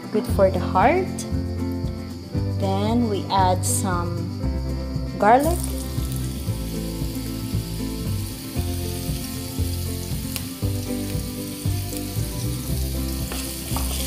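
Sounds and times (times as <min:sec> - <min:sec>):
background music: 0:00.0 - 0:14.0
garlic sizzling in oil: 0:05.4 - 0:14.0.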